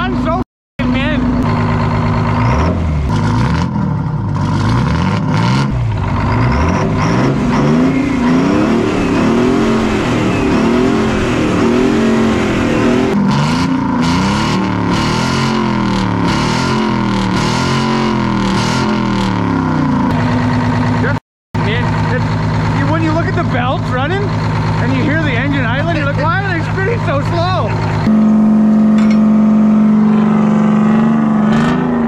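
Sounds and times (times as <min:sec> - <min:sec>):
diesel truck engine revving: 0:00.0 - 0:32.0.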